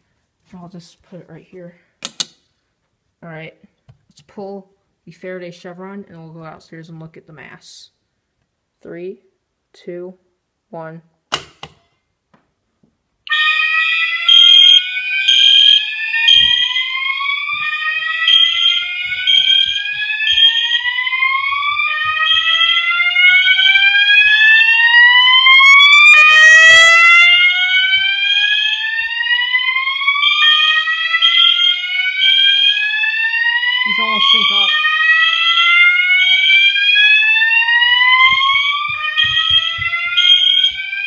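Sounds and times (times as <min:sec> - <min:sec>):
rising fire alarm sirens: 0:13.3 - 0:41.0
pulsing high horn tone: 0:23.4 - 0:27.8.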